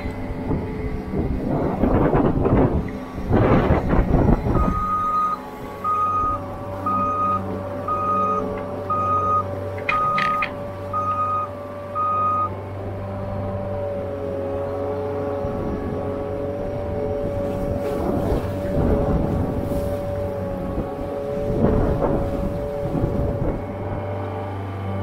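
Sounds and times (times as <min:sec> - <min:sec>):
skid loader engine running: 0:00.0 - 0:25.0
reverse alarm beeping: 0:04.6 - 0:12.5.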